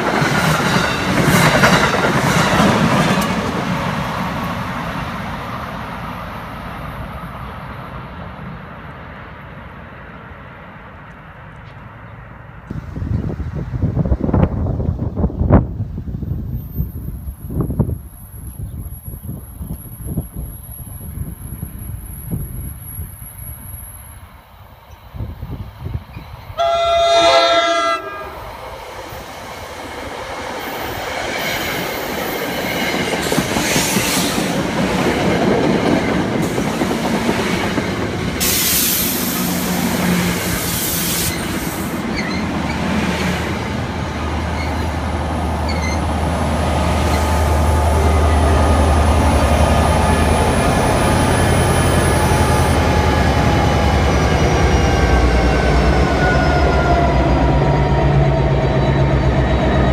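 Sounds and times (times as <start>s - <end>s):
low locomotive engine drone: 0.0s - 59.9s
train wheel and rail noise: 0.0s - 59.9s
train air horn chord: 26.6s - 28.4s
high hiss: 38.4s - 42.1s.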